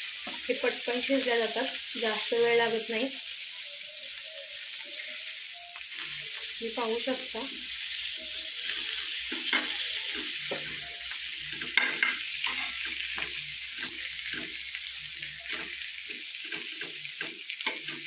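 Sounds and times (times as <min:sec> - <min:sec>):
fish sizzling in oil: 0:00.0 - 0:18.0
metal spatula scraping pan: 0:08.6 - 0:14.7
metal clattering on pan: 0:11.6 - 0:12.9.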